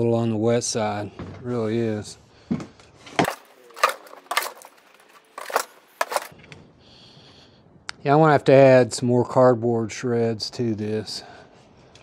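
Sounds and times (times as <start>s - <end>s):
shovel scraping damp bedding: 3.1s - 6.3s.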